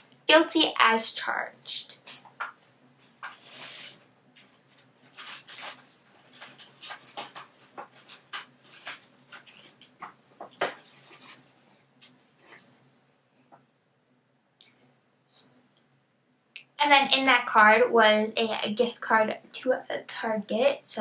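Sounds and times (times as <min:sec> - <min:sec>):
packaging rustling: 0:03.3 - 0:11.5.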